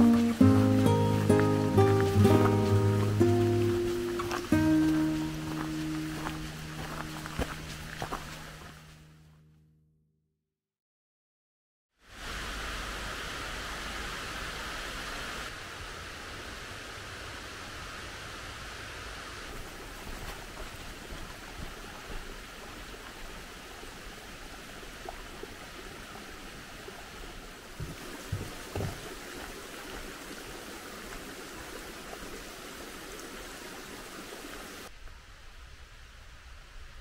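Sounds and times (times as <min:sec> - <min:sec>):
mountain stream rushing: 0:00.0 - 0:09.2, 0:12.1 - 0:34.9
soft low thumps: 0:27.8 - 0:29.2.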